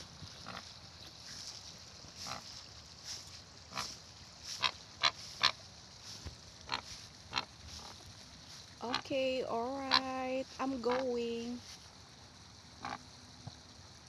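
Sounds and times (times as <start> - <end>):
flamingos grunting calls: 0.0 - 0.8, 2.1 - 9.1, 9.8 - 11.2, 12.8 - 13.1.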